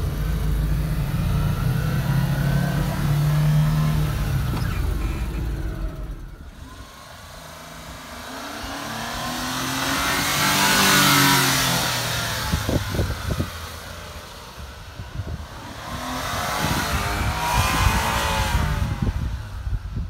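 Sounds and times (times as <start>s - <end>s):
wind buffeting microphone: 8.3s - 20.0s.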